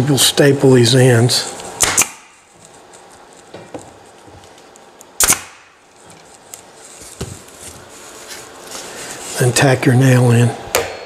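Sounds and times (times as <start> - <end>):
handling twine: 1.0 - 5.2, 5.8 - 10.2
strike on wooden chair frame: 10.7 - 11.0.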